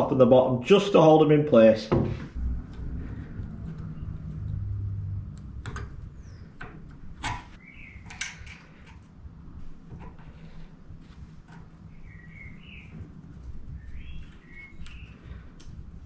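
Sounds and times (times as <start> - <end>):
steady low hum: 2.0 - 16.0
faint bird chirps: 7.6 - 8.2, 11.9 - 13.1, 13.7 - 15.4.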